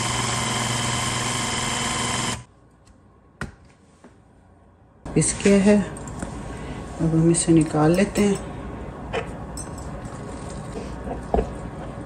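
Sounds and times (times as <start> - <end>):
electric blender motor running: 0.0 - 2.5.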